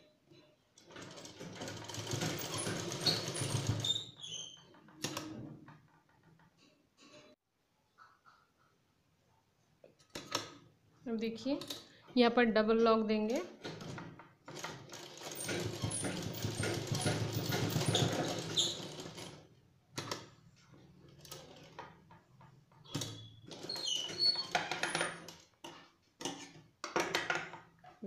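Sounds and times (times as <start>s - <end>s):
sewing machine running: 0.9s - 4.0s, 13.7s - 19.4s.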